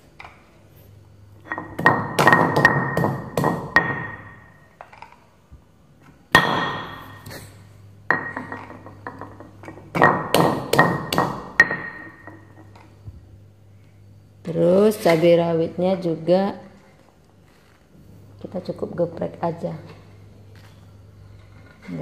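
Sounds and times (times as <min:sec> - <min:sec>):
stone pestle pounding in a mortar: 0:01.7 - 0:04.4, 0:09.9 - 0:12.0.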